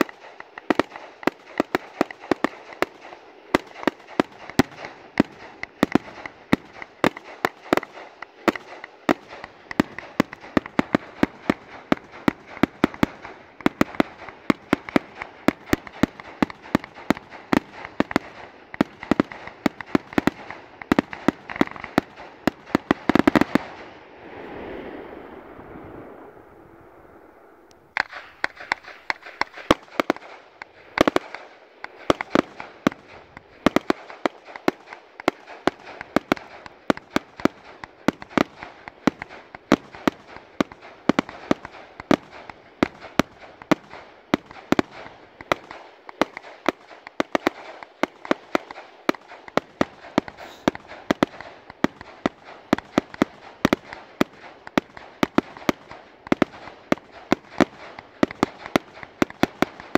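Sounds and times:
firework cake bangs: 28.0s - 59.9s.

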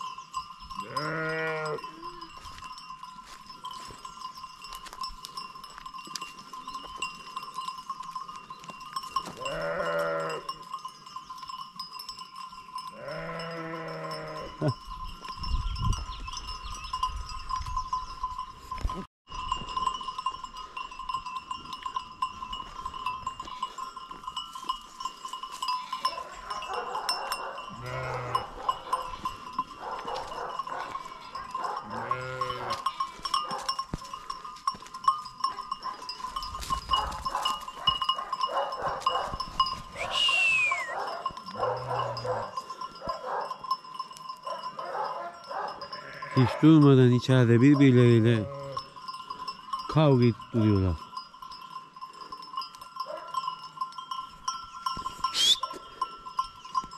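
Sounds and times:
sheep bells ringing: 0.0s - 56.9s
sheep bleating: 0.8s - 2.4s, 9.4s - 10.5s, 13.0s - 14.7s, 27.7s - 29.2s, 31.0s - 33.2s, 45.8s - 46.6s, 48.4s - 48.9s.

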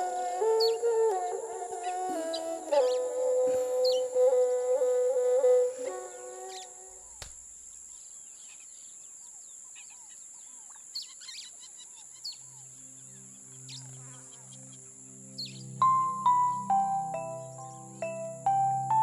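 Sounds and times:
low held music chord: 0.0s - 6.5s, 12.7s - 19.0s
insect drone: 0.0s - 19.0s
bird chirps: 7.9s - 19.0s.

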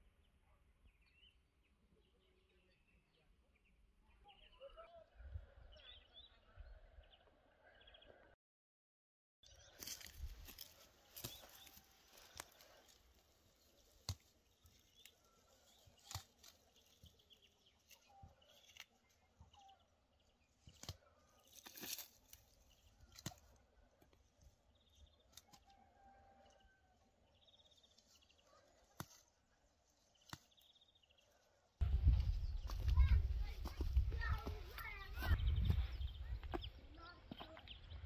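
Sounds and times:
plant stems snapping and rustling: 9.8s - 13.0s, 15.8s - 17.0s, 17.8s - 19.1s, 20.7s - 23.6s, 28.9s - 29.3s, 30.2s - 30.7s.

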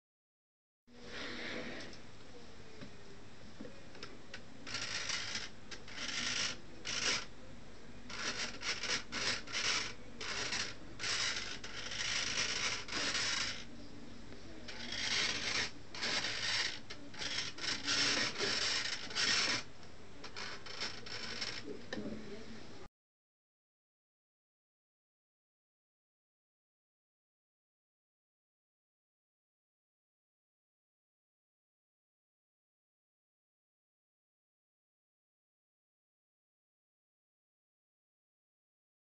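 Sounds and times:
servo buzzing: 8.1s - 13.7s, 14.7s - 21.7s.

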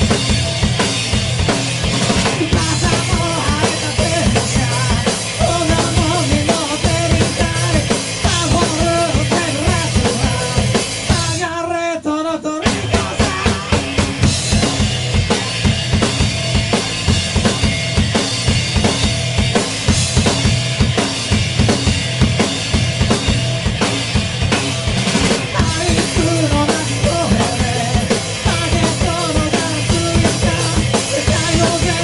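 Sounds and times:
electric guitar: 0.0s - 11.6s, 12.2s - 32.0s
driving drum kit: 0.0s - 11.7s, 12.5s - 32.0s
man singing: 2.3s - 14.1s, 25.5s - 32.0s.

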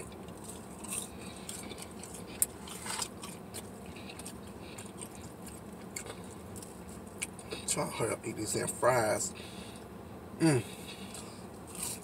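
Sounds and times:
person chewing crunchy fries: 0.0s - 7.9s, 10.6s - 12.0s.

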